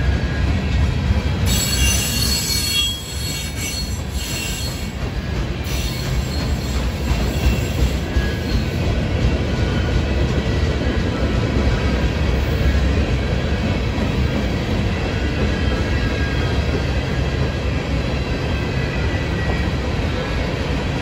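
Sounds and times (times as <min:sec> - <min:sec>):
freight train wheels rumbling: 0:00.0 - 0:21.0
high-pitched wheel squeal: 0:01.5 - 0:05.0.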